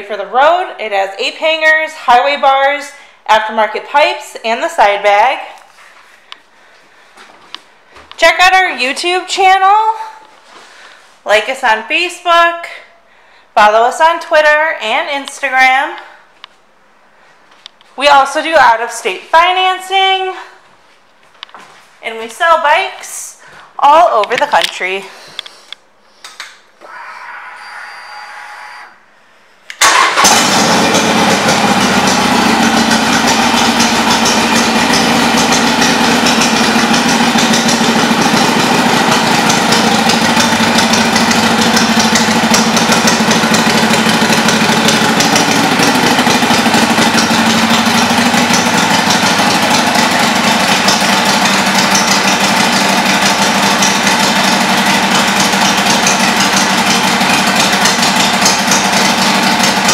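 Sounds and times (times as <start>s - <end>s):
motorcycle engine starting and idling: 29.8s - 59.9s.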